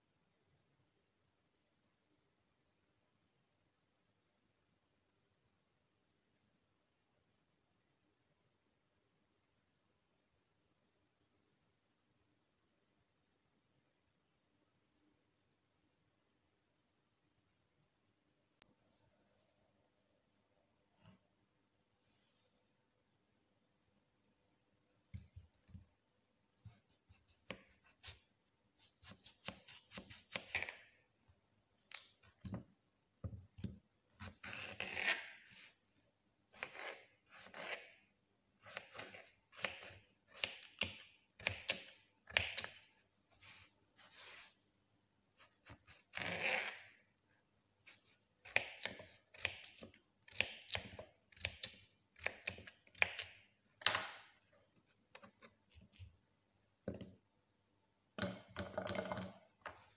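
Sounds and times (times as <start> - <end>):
knife slicing potato: 26.6 - 30.8, 33.2 - 44.6, 45.4 - 46.9, 47.8 - 53.9.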